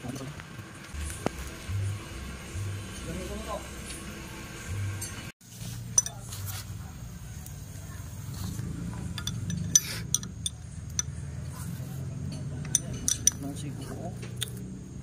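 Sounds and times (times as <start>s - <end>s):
wrench clinking and scraping on metal: 5.9s - 6.6s, 9.0s - 11.2s, 12.3s - 14.7s.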